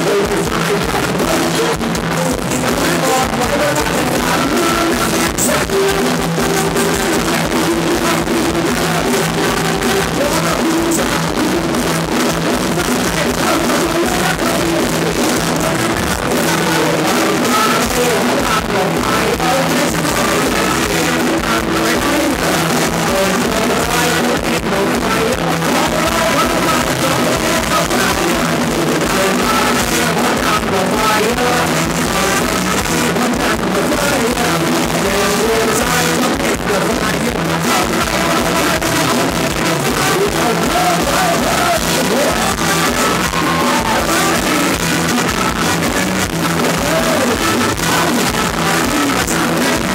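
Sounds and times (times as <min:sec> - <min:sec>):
drum kit: 0:00.0 - 0:49.9
live band dance music: 0:00.0 - 0:49.9
person singing: 0:00.0 - 0:49.9.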